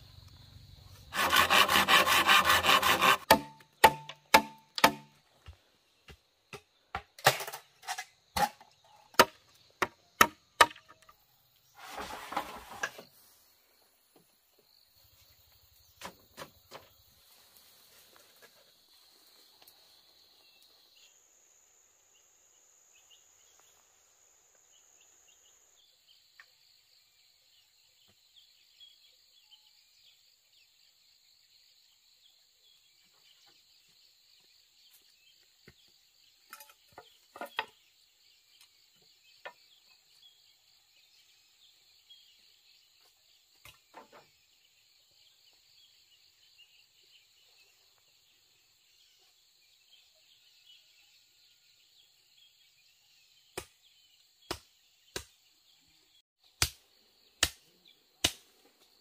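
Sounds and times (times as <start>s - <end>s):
sharp knocks: 3.0s - 5.1s.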